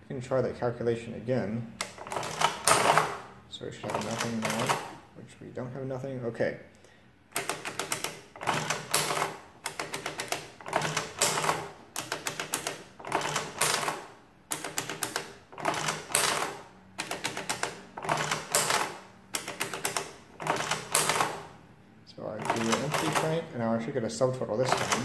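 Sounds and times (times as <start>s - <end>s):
adding machine ratcheting clatter: 1.8s - 3.3s, 3.9s - 5.0s, 7.3s - 21.5s, 22.4s - 23.5s, 24.6s - 25.0s.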